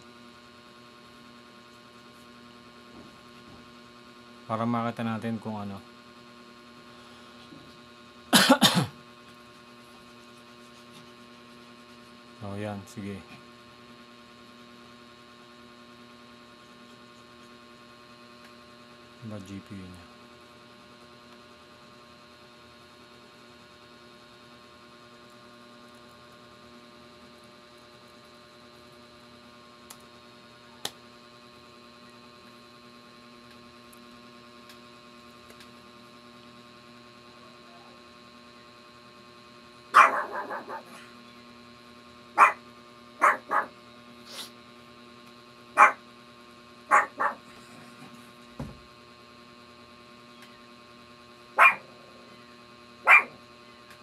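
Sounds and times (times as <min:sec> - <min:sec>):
electrical hum: 0:00.0 - 0:54.0
dog barking: 0:39.9 - 0:41.0, 0:42.4 - 0:42.6, 0:43.2 - 0:43.7, 0:45.8 - 0:46.0, 0:46.9 - 0:47.4, 0:51.6 - 0:51.9, 0:53.0 - 0:53.4.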